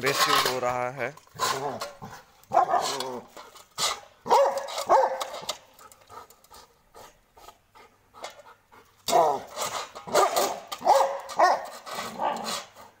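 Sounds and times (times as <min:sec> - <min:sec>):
dog barking aggressively: 0:01.4 - 0:05.5, 0:09.1 - 0:12.7.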